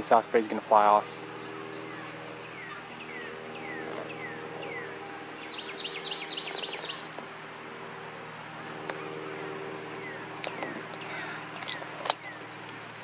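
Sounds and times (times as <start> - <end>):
osprey calling: 1.0 - 7.2.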